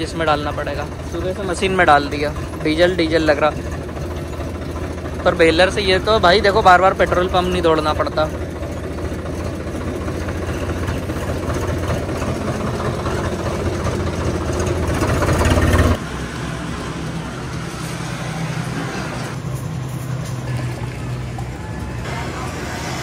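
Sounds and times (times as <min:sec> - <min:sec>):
hand pumping fuel: 0:00.0 - 0:16.0
tractor diesel engine running: 0:00.0 - 0:23.0.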